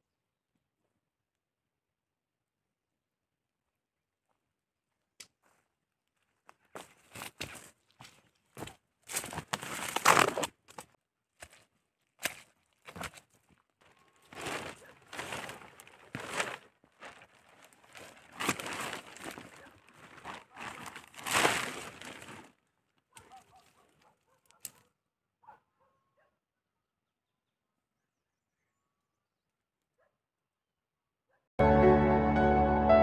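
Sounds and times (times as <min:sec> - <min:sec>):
rustling and crinkling: 0:06.6 - 0:24.8.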